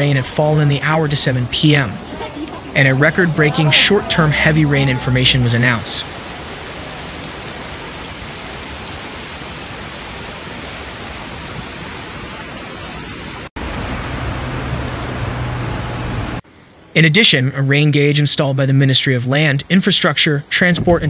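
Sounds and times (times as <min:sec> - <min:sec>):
heavy rain on pavement: 0:00.0 - 0:16.9.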